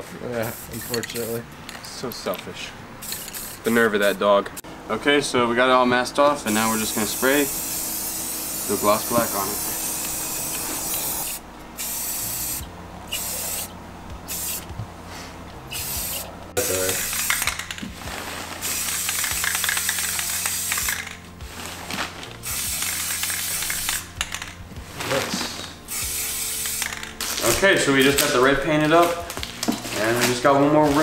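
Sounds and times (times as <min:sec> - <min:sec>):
spray paint can hissing: 0:00.4 - 0:01.4, 0:03.0 - 0:04.2, 0:06.5 - 0:13.7, 0:14.3 - 0:14.7, 0:15.7 - 0:17.9, 0:18.6 - 0:28.4.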